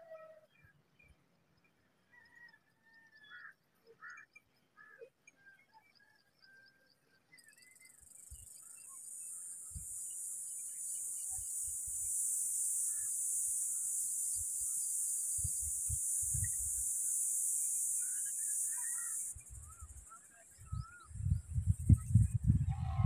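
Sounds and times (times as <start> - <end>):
bird chirps: 3.0 - 23.0
high-pitched insect drone: 8.2 - 20.5.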